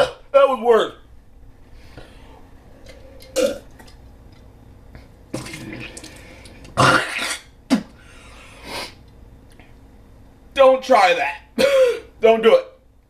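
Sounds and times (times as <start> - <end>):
man burping: 3.3 - 3.7, 6.8 - 7.9
man clearing throat: 11.6 - 12.1
man coughing: 11.6 - 12.1.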